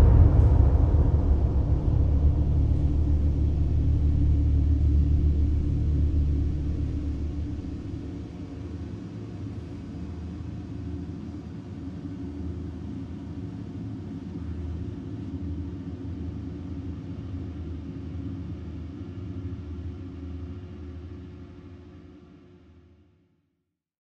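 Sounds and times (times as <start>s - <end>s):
held low tones: 0.0s - 8.5s
low rumbling drone: 0.0s - 9.1s.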